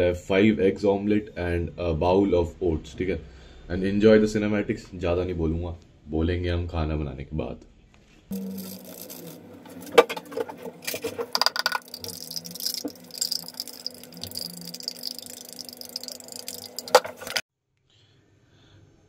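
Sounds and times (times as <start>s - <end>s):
dishes clinking and rattling: 8.4s - 17.4s.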